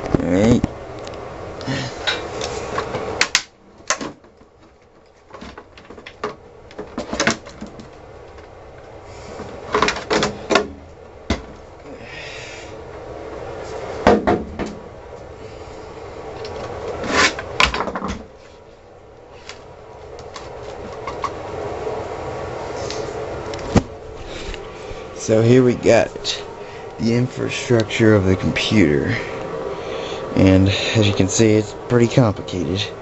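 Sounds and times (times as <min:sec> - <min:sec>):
short scrape: 0:17.0 - 0:17.4.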